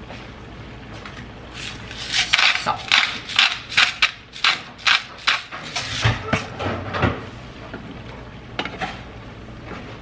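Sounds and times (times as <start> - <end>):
spice grinder crunching: 1.5 - 5.8.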